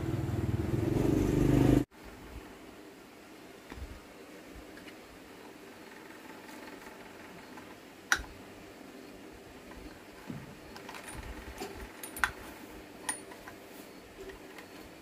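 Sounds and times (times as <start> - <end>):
sharp clicks: 6.4 - 8.4
metal tools tapping motor casing: 9.7 - 13.6.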